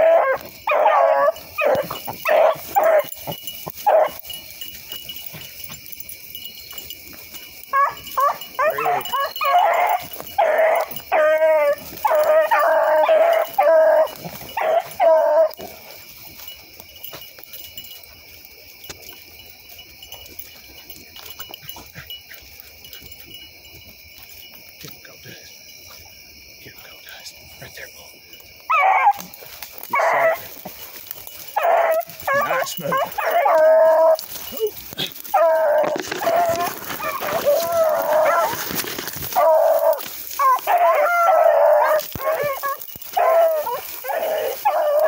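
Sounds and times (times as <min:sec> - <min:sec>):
hound baying: 0:00.0 - 0:24.4, 0:28.6 - 0:45.0
faint rustling of brush: 0:29.2 - 0:45.0.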